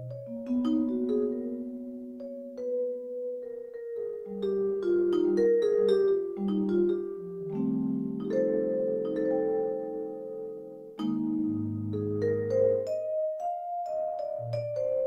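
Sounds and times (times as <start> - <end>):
held vibraphone chord: 0.0 - 15.0
vibraphone melody: 0.0 - 15.0.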